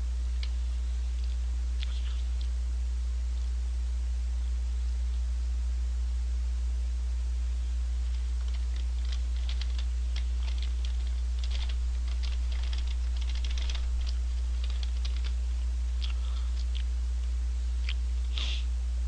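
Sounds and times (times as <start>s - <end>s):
steady low hum: 0.0s - 19.0s
paper bag crinkling: 8.1s - 15.4s.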